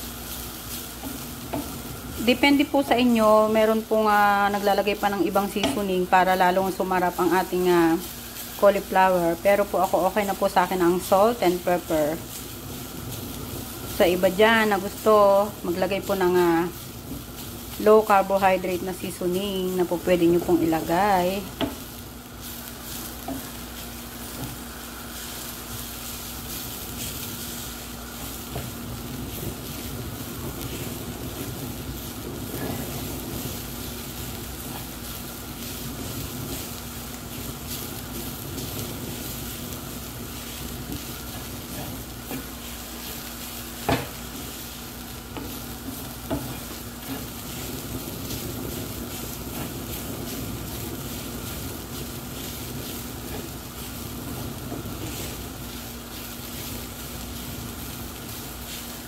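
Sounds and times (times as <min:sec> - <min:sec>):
rice sizzling in frying pan: 0:00.0 - 0:59.0
steady hum: 0:00.0 - 0:59.0
wooden spatula scraping pan: 0:40.8 - 0:44.7.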